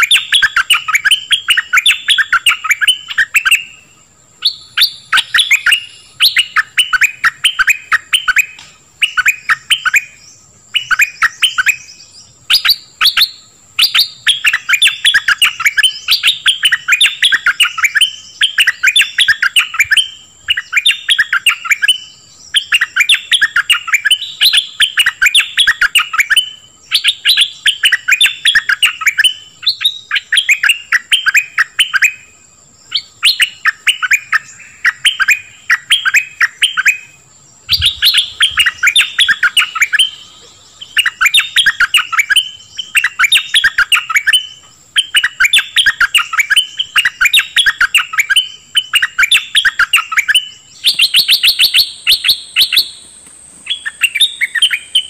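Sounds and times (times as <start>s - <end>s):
bulbul singing chirpy phrases: 32.9s - 53.0s.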